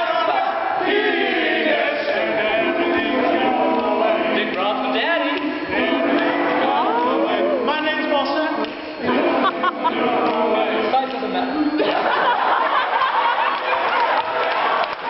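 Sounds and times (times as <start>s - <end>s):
male a cappella group singing: 0.0s - 12.3s.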